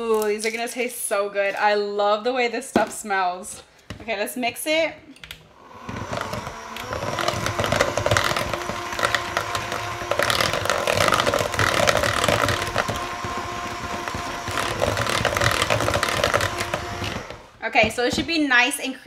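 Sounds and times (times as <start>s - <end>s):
electric hand mixer whirring: 5.5s - 18.2s
beaters clicking against plastic bowl: 6.1s - 17.3s.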